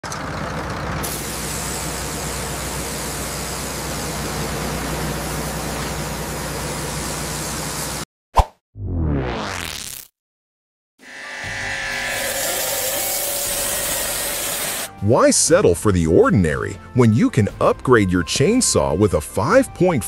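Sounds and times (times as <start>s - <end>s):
circular saw running: 11.0s - 14.9s.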